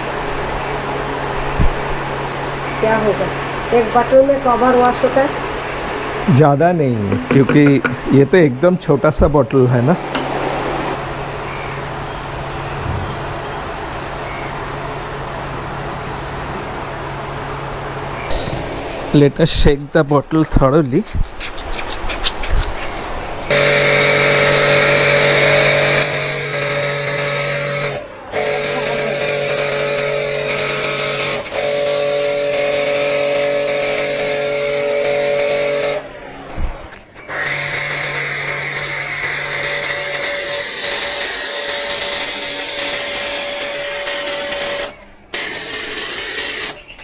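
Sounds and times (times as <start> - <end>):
pressure washer motor whine: 9.8 - 19.1, 23.5 - 36.2, 37.2 - 46.8
low hum: 10.9 - 16.8.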